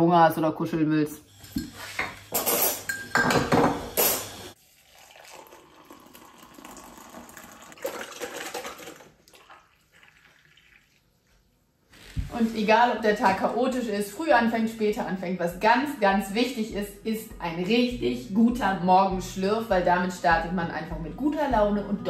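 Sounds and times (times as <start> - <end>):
kitchenware clattering: 1.4 - 4.4
water pouring into a mug: 4.5 - 11.4
milk pouring: 4.5 - 11.7.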